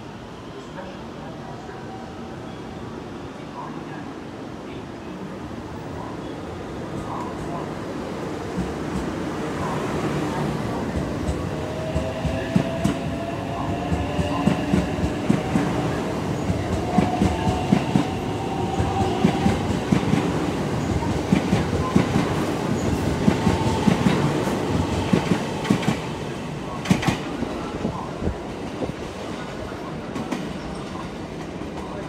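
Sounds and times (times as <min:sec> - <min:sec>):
train wheels clacking on rails: 0:10.8 - 0:28.9.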